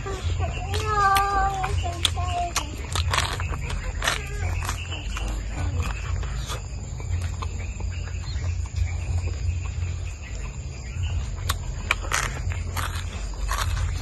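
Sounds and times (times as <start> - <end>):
steady low rumble: 0.0 - 14.0
chewing and lip smacks: 0.2 - 14.0.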